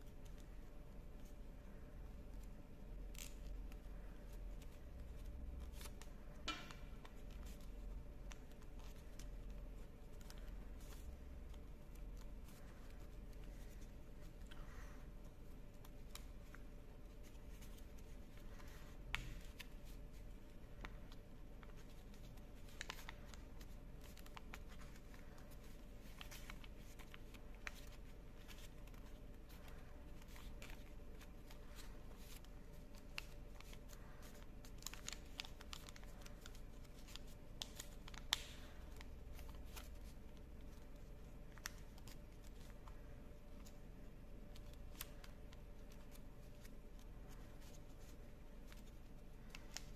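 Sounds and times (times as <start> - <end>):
faint low hum: 0.0 - 49.9
paper rustling and crinkling: 20.8 - 43.8
small paper clicks: 20.8 - 43.8, 44.5 - 49.9.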